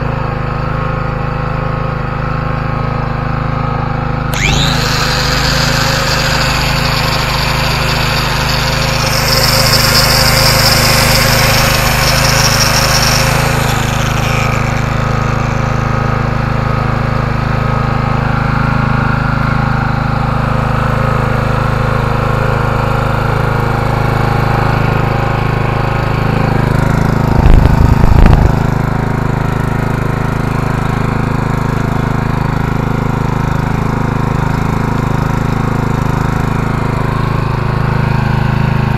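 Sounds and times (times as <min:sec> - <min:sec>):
generator engine running: 0:00.0 - 0:38.9
power tool whining: 0:03.5 - 0:38.9
loud low rumble: 0:27.3 - 0:28.6.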